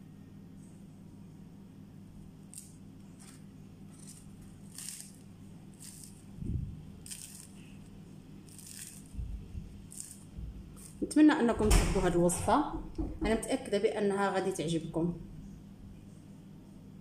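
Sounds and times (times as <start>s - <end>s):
fried dough crunching: 2.3s - 11.1s.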